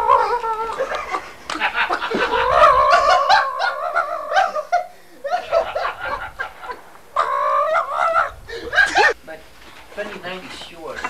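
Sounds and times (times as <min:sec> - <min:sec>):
man laughing: 0:00.6 - 0:09.2.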